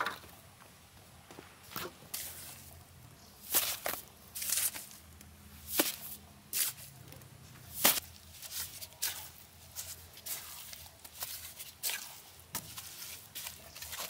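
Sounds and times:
mortar slapping onto soil: 3.4s - 5.0s, 5.7s - 6.9s, 7.7s - 9.4s
trowel scraping cement mortar: 5.7s - 6.9s, 7.7s - 14.0s.

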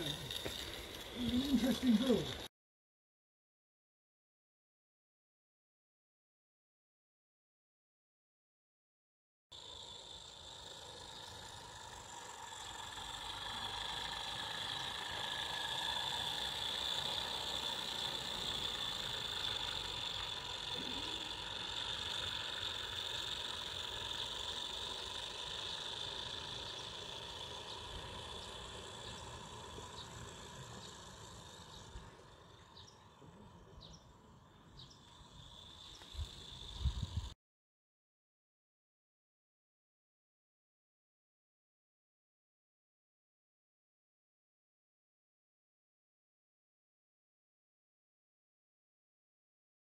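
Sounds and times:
model train whirring: 0.0s - 2.5s, 9.5s - 37.4s.

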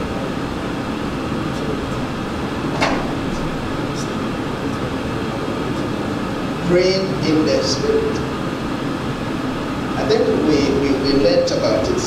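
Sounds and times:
room hum and hiss: 0.0s - 12.0s.

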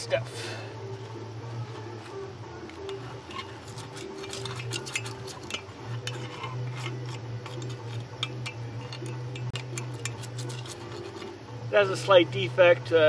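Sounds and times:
steady low hum: 0.0s - 13.0s
metal tool tapping and scraping: 2.6s - 11.4s.

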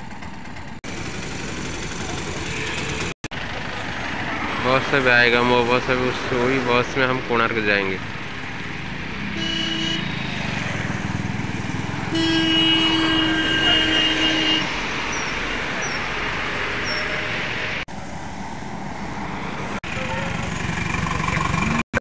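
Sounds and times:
highway traffic passing: 0.0s - 22.0s
vehicle horn: 2.4s - 3.1s, 9.3s - 10.3s, 12.1s - 14.8s, 19.8s - 20.5s.

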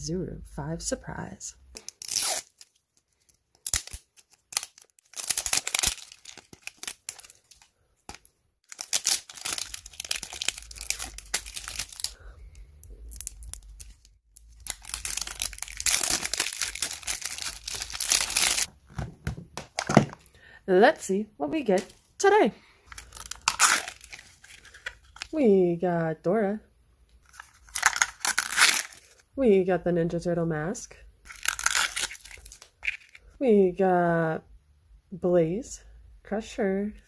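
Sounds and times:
wrapper tearing and crinkling: 1.8s - 12.2s, 13.1s - 18.7s, 22.9s - 25.3s, 27.2s - 29.2s, 31.3s - 33.2s.

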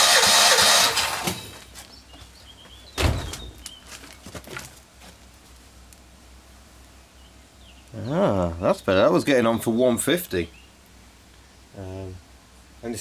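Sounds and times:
engine cranking on starter: 0.0s - 1.4s
sharp thunk: 3.0s - 3.6s.

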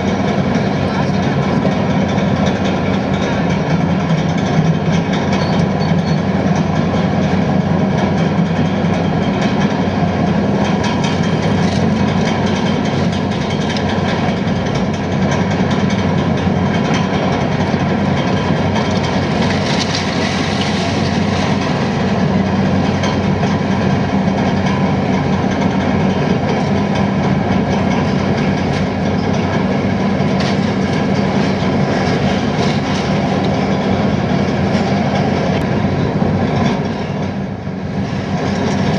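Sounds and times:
diesel machinery engine drone: 0.0s - 38.9s
clanking and rattling: 0.1s - 38.9s.

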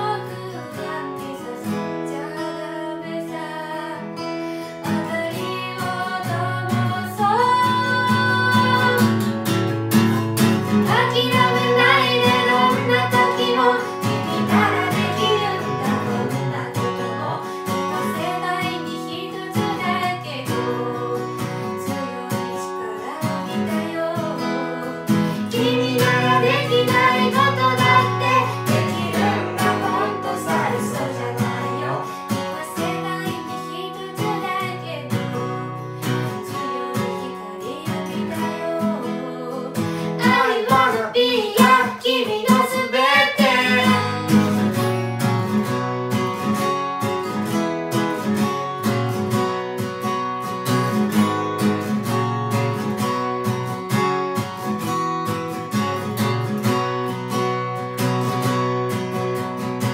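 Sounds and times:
strummed acoustic guitar: 0.0s - 59.9s
woman singing rock song: 4.6s - 9.2s, 10.8s - 35.6s, 36.4s - 44.2s.

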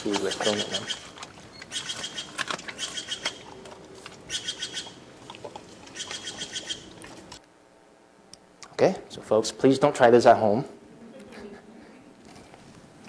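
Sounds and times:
hyena chewing bone: 0.0s - 7.4s.

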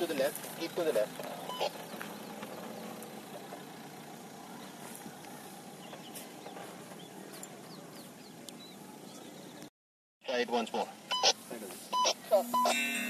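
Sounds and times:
faint diesel engine running: 0.0s - 9.0s.

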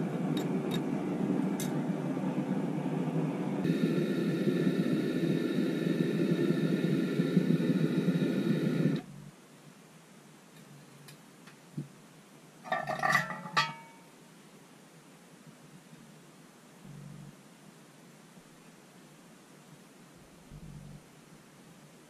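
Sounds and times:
gas burner roaring: 0.0s - 9.1s.

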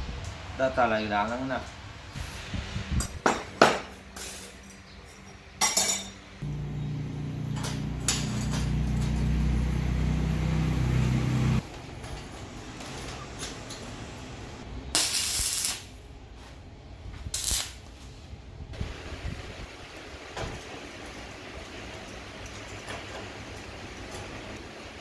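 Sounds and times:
welding crackle: 14.9s - 16.0s, 17.2s - 18.0s, 18.8s - 25.0s.

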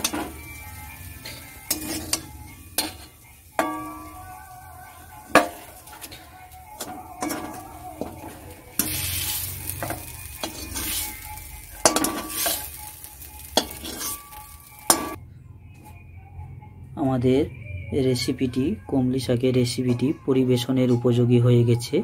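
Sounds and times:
light sizzle from hot pan: 0.0s - 15.2s
metal spatula scraping a wok: 0.0s - 15.2s.

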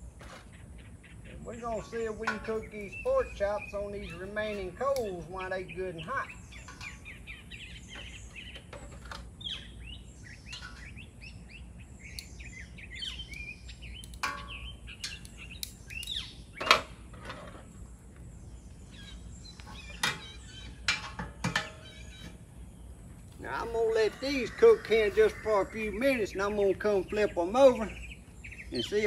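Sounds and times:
birds chirping: 0.0s - 29.0s
metal tongs clanking on grate: 1.6s - 5.4s, 6.0s - 7.2s, 10.5s - 11.0s, 14.0s - 17.5s, 19.7s - 22.3s.

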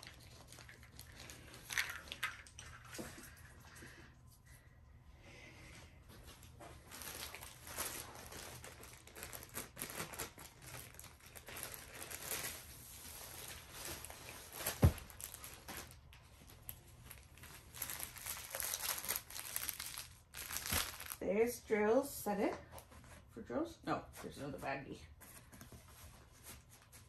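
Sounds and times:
plastic packaging crinkling: 0.0s - 2.9s, 6.8s - 21.2s.

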